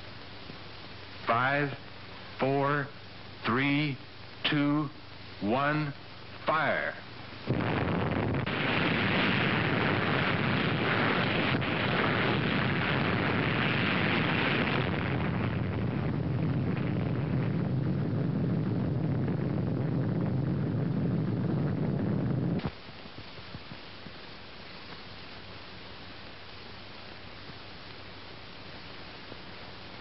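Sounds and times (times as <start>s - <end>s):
underwater explosion blast: 7.5s - 22.6s.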